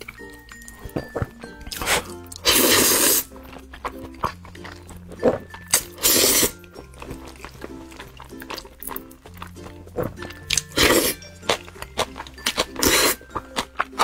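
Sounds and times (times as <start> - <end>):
background music with steady beat: 0.0 - 14.0
person slurping noodles: 1.7 - 3.5, 5.2 - 8.6, 10.5 - 11.6, 12.6 - 13.4.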